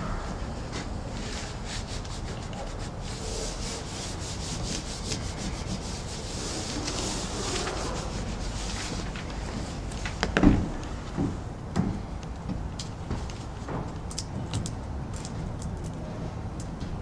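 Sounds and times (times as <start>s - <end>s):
hands rubbing membrane swishing: 0.7s - 10.0s.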